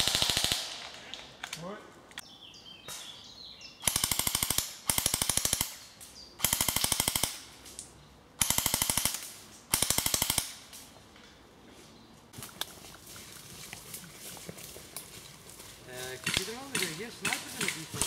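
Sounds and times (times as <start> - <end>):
airsoft rifle full-auto bursts: 0.0 - 0.8, 3.8 - 5.8, 6.4 - 7.5, 8.4 - 10.6.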